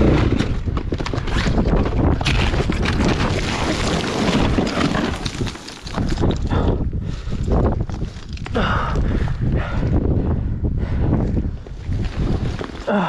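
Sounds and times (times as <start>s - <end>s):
knocks and rattles: 0.0s - 6.8s
wind buffeting microphone: 0.0s - 12.9s.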